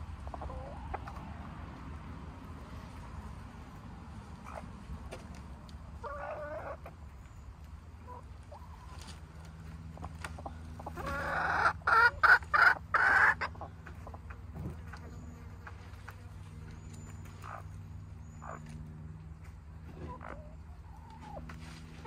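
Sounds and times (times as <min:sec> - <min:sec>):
hens clucking softly: 0:00.0 - 0:01.9, 0:02.6 - 0:22.0
hen cackling loudly: 0:10.8 - 0:13.7.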